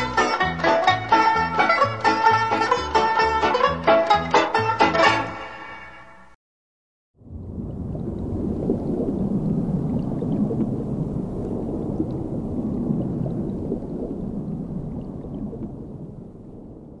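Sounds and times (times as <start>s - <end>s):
deep low rumbling sound effect: 7.2s - 17.0s.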